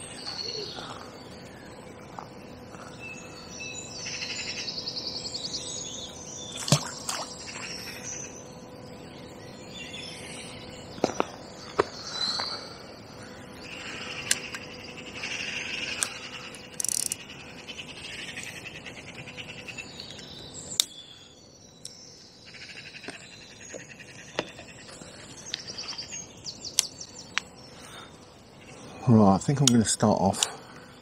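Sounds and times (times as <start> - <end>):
songbirds singing: 0.0 - 31.0
fishing tackle clicking: 16.7 - 17.2.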